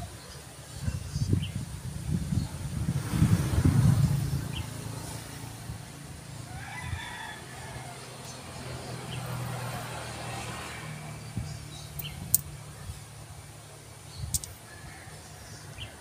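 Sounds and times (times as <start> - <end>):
rooster crowing: 6.4 - 8.4, 14.6 - 16.0.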